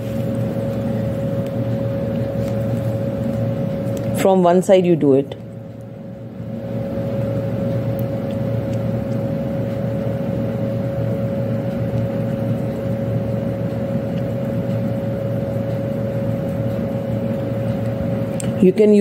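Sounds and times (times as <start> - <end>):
machine hum with whining tone: 0.0 - 19.0.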